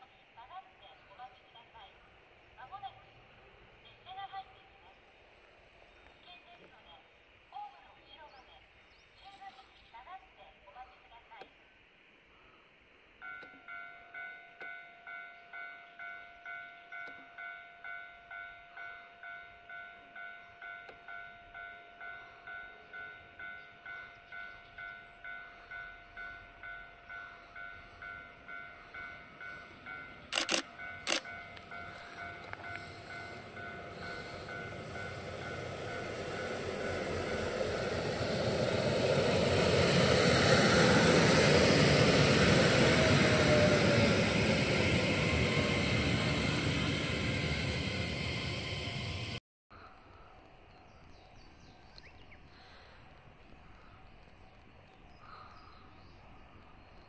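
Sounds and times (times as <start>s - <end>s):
railcar rumbling past: 13.2s - 49.4s
level crossing bell ringing: 26.2s - 38.2s
sharp clicks: 30.3s - 31.7s.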